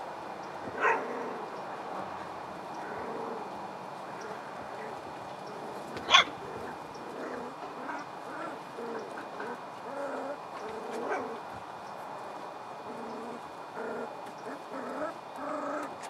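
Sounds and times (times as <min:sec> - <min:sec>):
puppies grunting and whimpering: 0:00.6 - 0:01.6, 0:02.7 - 0:11.5, 0:12.8 - 0:16.0
puppy yipping: 0:00.8 - 0:01.1, 0:06.0 - 0:06.4.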